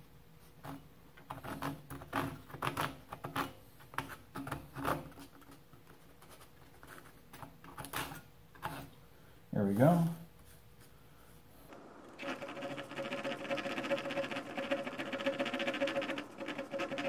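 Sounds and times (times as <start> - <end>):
hand saw rasping on wood: 12.2 - 17.0.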